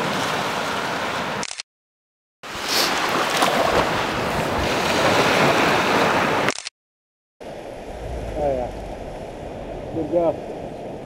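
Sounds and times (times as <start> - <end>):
surf washing on beach: 0.0 - 1.4, 2.5 - 6.5
wind buffeting microphone: 7.6 - 11.0.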